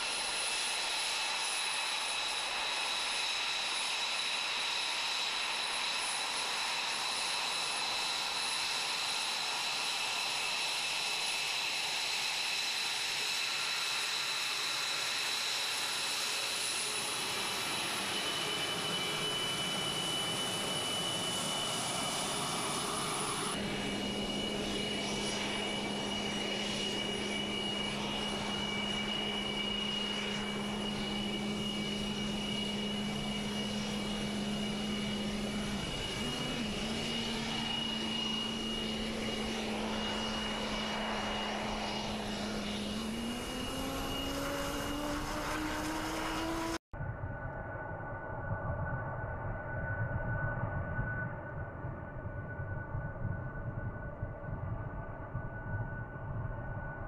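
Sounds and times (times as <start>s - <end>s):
jet engine whine: 0.0s - 57.0s
low drone: 16.8s - 56.8s.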